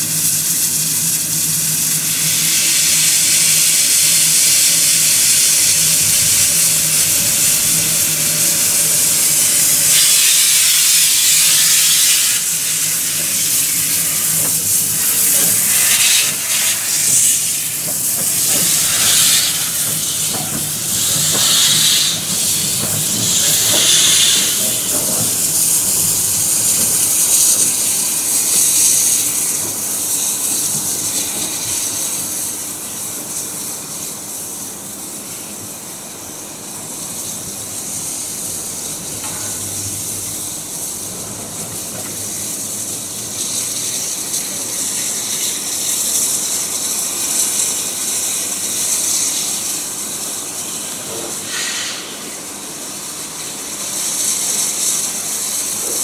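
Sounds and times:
steam locomotive hissing: 0:00.0 - 0:56.0
steam locomotive puffing: 0:00.1 - 0:32.6, 0:51.0 - 0:52.6.

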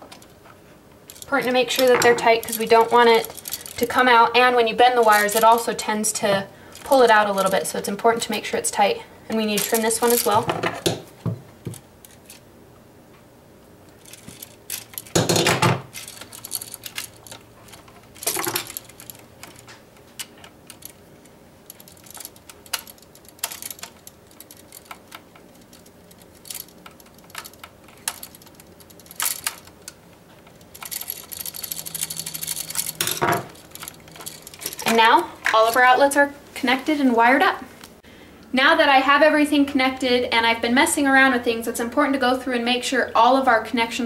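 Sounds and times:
tools clicking on wire: 0:01.1 - 0:04.1, 0:09.3 - 0:11.0, 0:13.9 - 0:35.9.

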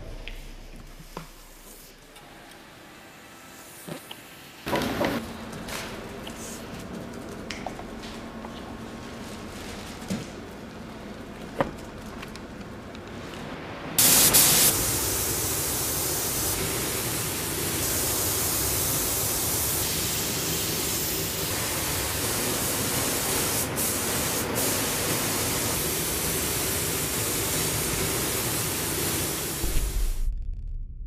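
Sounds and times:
spray gun hissing: 0:14.0 - 0:30.2.

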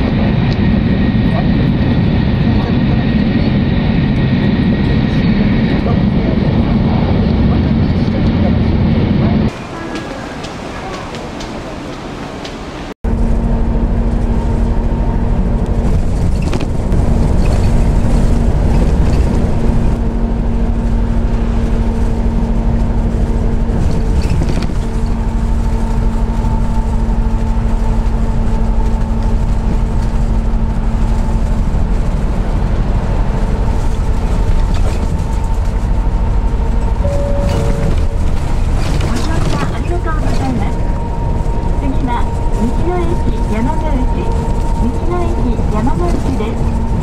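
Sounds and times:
coach engine drone: 0:00.0 - 0:47.0
road rumble: 0:00.0 - 0:47.0
street ambience: 0:00.0 - 0:47.0
steady tones: 0:35.9 - 0:47.0.

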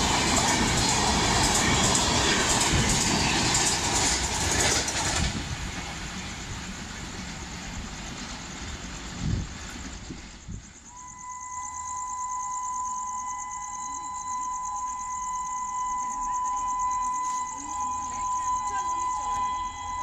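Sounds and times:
train coaches rushing past: 0:00.0 - 0:11.2, 0:15.2 - 0:20.0
roar of wheels on rail: 0:00.0 - 0:11.4, 0:16.6 - 0:20.0.

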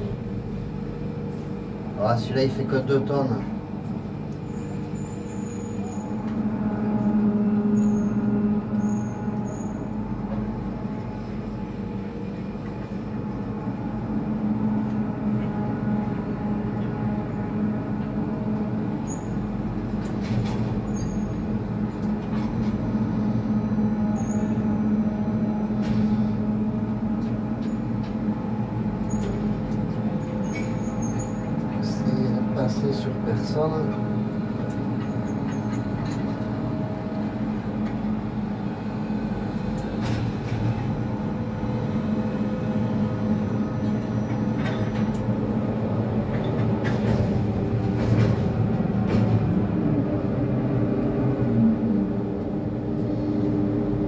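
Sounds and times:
crane machine hum with whine: 0:00.0 - 0:54.0.

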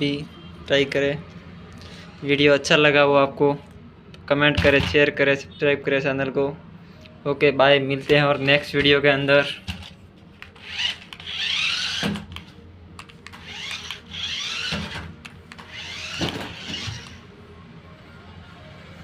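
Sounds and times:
toy car electric motors whirring: 0:10.4 - 0:12.5, 0:13.2 - 0:17.2.

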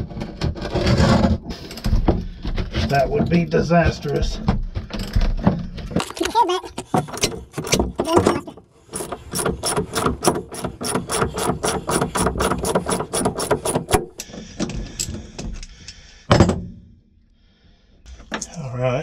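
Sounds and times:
ratchet wrench clicking: 0:08.9 - 0:14.2.

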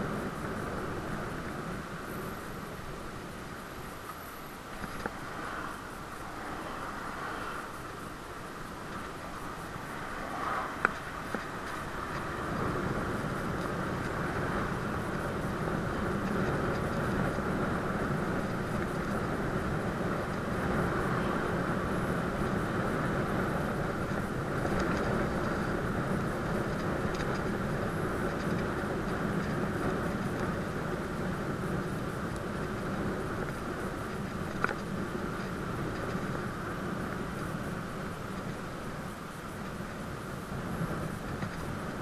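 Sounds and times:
bicycle tyres on asphalt: 0:00.0 - 0:42.0
wind rushing: 0:09.2 - 0:23.4.

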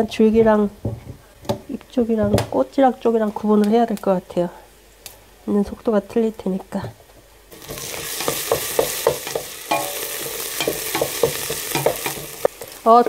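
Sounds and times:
onions sizzling in oil: 0:07.5 - 0:13.0
spoon knocking and scraping pot: 0:07.6 - 0:12.5.

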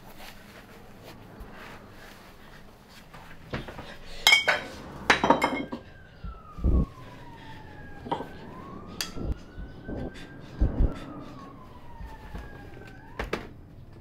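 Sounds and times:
distant siren wailing: 0:00.6 - 0:14.0
dull low thump: 0:06.2 - 0:07.0, 0:08.6 - 0:11.0.

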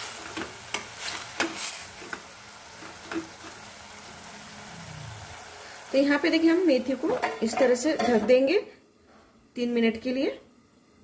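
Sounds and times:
low sizzle: 0:00.0 - 0:11.0.

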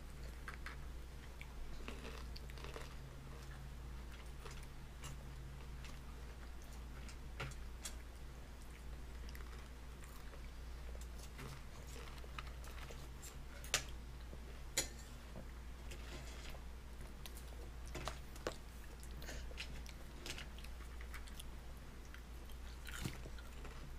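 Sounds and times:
steady low hum: 0:00.0 - 0:23.9.

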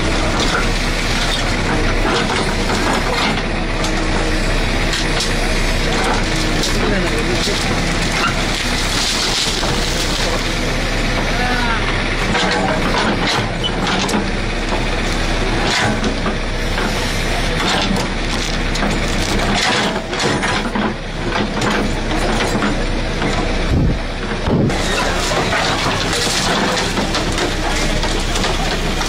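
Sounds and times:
falling earth and debris clattering: 0:00.0 - 0:11.6, 0:24.3 - 0:29.0
diesel engine running: 0:00.0 - 0:29.0.

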